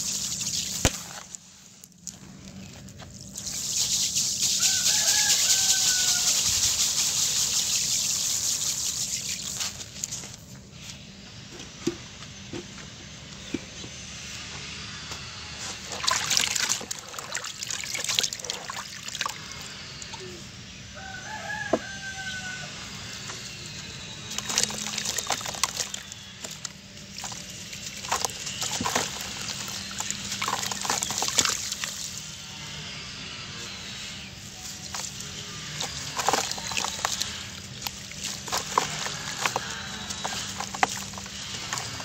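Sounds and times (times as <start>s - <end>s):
water splashing and sloshing: 0.0s - 1.4s, 15.7s - 19.7s, 24.3s - 32.4s, 34.6s - 42.0s.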